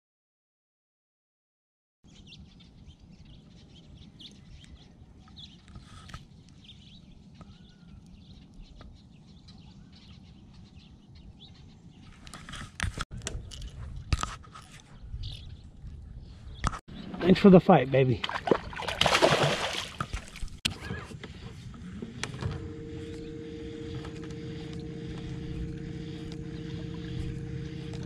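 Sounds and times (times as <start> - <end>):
faint bird chirps: 2.1 - 12.2.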